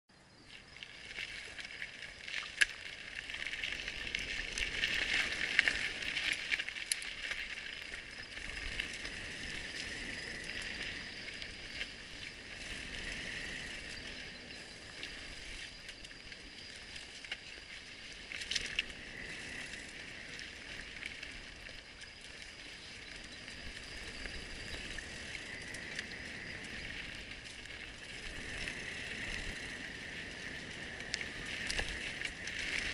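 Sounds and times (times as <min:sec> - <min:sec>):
bike tyres rolling on dirt: 0:00.1 - 0:32.9.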